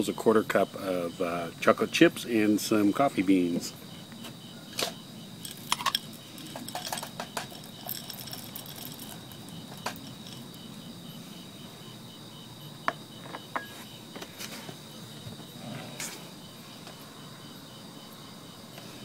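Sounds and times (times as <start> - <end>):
crickets chirping: 0.0 - 19.0
glass bowl clink: 5.4 - 10.5.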